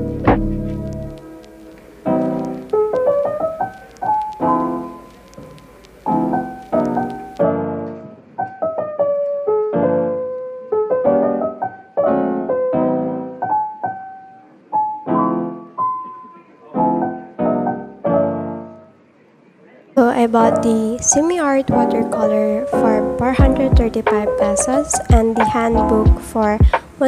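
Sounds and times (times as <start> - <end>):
soft piano music: 0.0 - 19.1, 20.0 - 27.0
faint hiss: 1.1 - 7.4.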